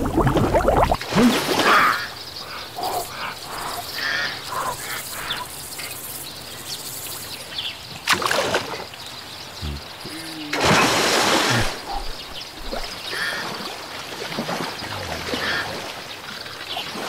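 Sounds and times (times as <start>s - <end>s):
cartoon water splashing: 0.0s - 1.8s, 9.6s - 11.8s
bird chirps and calls: 9.4s - 10.6s.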